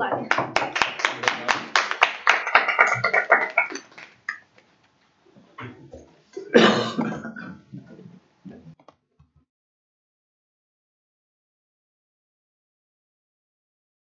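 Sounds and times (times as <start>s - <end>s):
small audience clapping: 0.0s - 4.6s.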